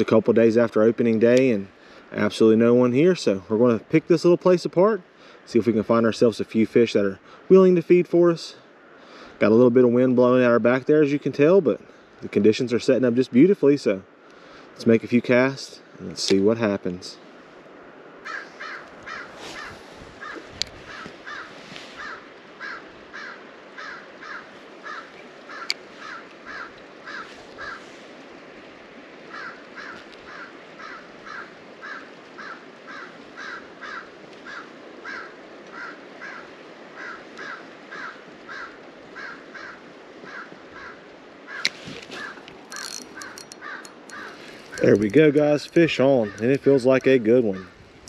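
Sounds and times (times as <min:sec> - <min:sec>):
background hiss: 0:00.0 - 0:48.0
short animal calls: 0:18.2 - 0:28.0, 0:29.3 - 0:44.9
sharp clicks: 0:42.4 - 0:46.6.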